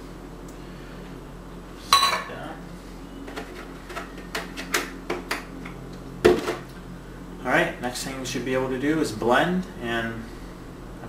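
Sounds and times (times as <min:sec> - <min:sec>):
kitchenware clinking on counter: 0:02.0 - 0:02.3.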